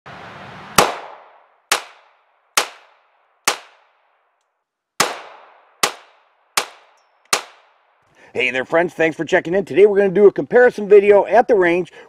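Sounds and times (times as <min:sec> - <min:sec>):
pistol shots with echo: 0:00.8 - 0:04.1, 0:05.0 - 0:07.9.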